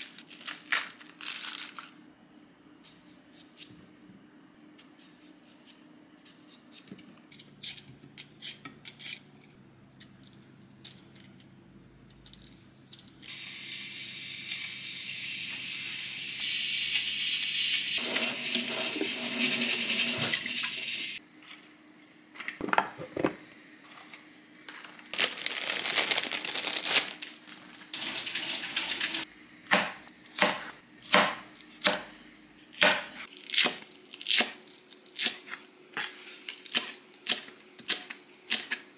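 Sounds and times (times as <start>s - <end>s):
tap water running into sink: 18.0s - 21.1s
knife chopping on cutting board: 29.7s - 32.1s, 32.8s - 33.8s.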